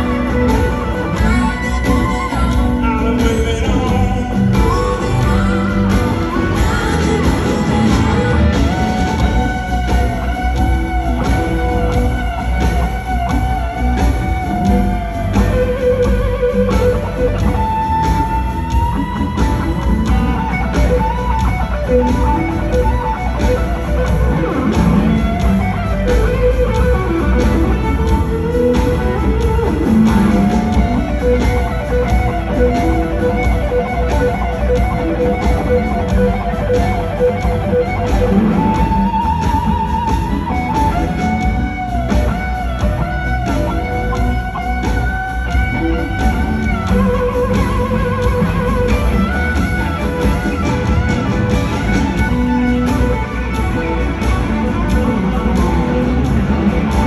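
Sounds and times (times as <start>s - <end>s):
blues-rock band playing: 0.0s - 57.0s
electric guitar bent notes: 0.0s - 57.0s.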